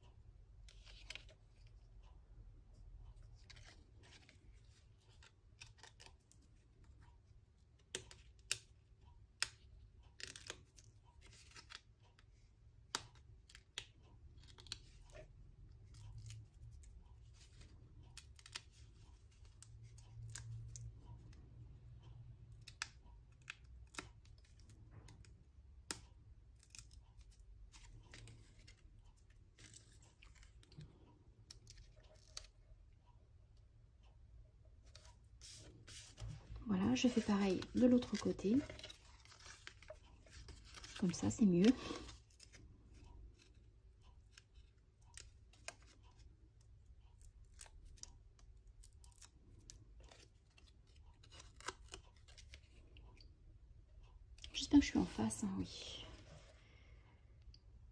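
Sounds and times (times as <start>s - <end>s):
paper rustling: 34.8s - 43.6s.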